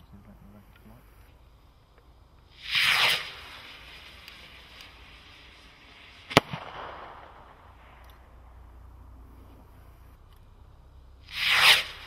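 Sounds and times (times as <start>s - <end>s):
firework rocket hissing: 0.9s - 10.2s, 11.1s - 12.0s
firework shell bang with echo: 6.2s - 8.6s.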